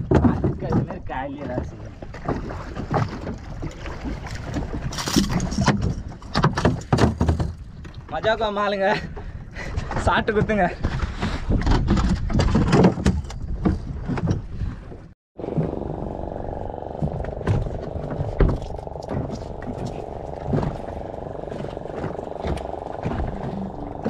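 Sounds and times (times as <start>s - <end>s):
wind: 0.0s - 24.0s
outboard motor running: 15.4s - 24.0s
voices: 15.5s - 24.0s.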